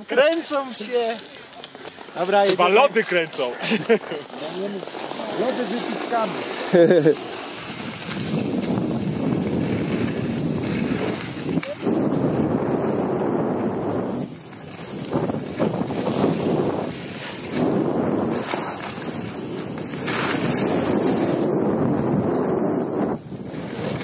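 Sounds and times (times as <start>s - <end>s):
skis scraping over packed snow: 0.0s - 24.0s
wind rushing over microphone: 5.4s - 24.0s.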